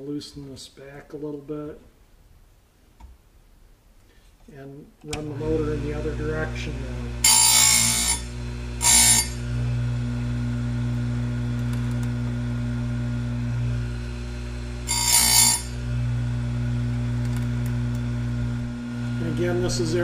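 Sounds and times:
grinding wheel rasping on chain: 0:07.2 - 0:09.4, 0:14.8 - 0:15.8
chain grinder motor running: 0:07.2 - 0:09.8, 0:14.6 - 0:16.1.

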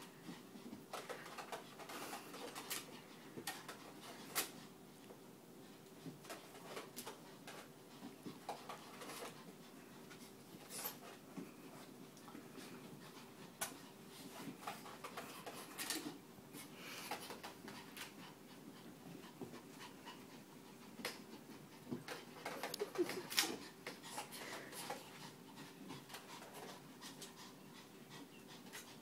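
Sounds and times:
small dog panting: 0:00.0 - 0:29.0.

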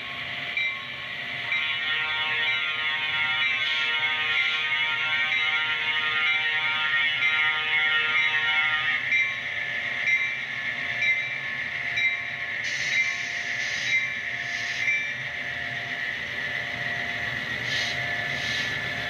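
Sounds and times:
train air horn blast: 0:01.6 - 0:09.0.

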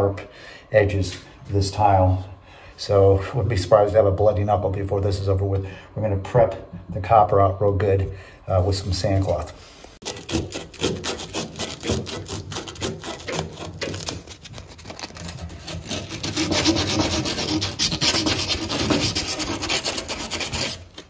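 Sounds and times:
sand cloth rasping on copper pipe: 0:10.0 - 0:21.0.

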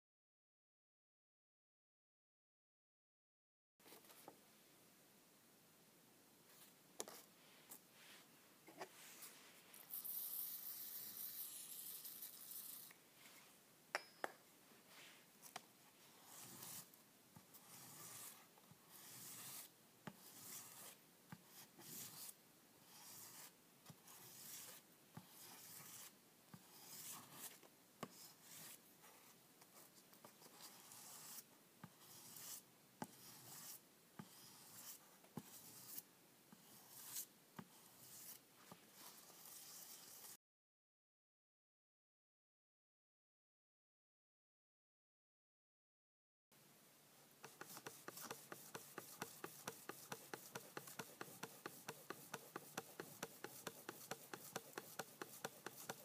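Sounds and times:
axe head scraping on abrasive paper: 0:47.5 - 0:56.0.

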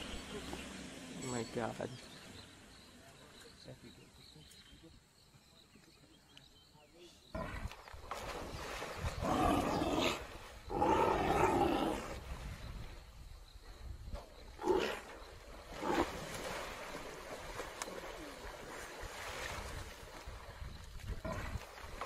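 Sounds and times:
lions growling: 0:09.1 - 0:12.2, 0:14.6 - 0:16.3.

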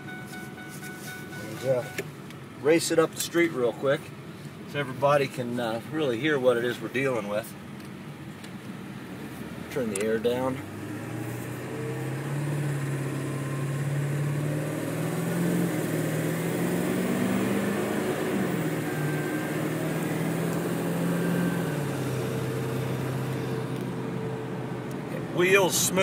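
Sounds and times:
diesel truck engine accelerating: 0:09.0 - 0:26.0.

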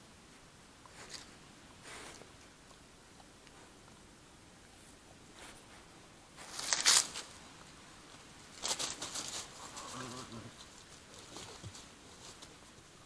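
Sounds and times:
badger scuffling against camera: 0:05.3 - 0:07.4.

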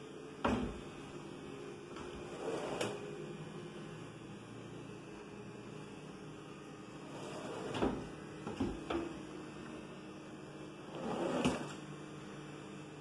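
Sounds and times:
drawer sliding on runners: 0:02.3 - 0:03.0, 0:07.1 - 0:08.0, 0:10.9 - 0:11.8.

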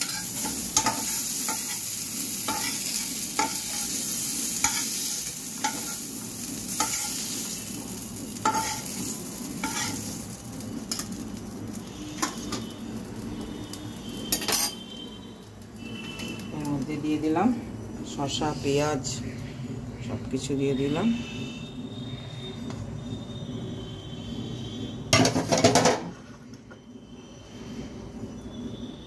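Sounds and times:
metal spatula scraping a pan: 0:00.0 - 0:07.7, 0:08.4 - 0:10.3
frying pan sizzling: 0:00.0 - 0:21.2, 0:22.9 - 0:29.0.

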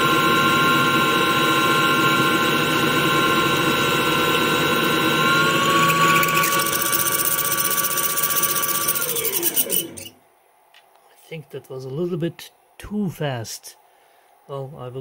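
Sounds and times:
lathe spindle whine: 0:00.0 - 0:10.2.

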